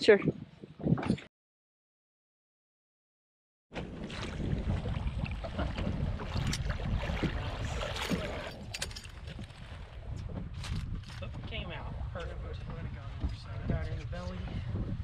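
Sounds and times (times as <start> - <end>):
wind buffeting microphone: 0.0 - 1.3, 3.8 - 15.0
water lapping and splashing: 3.7 - 15.0.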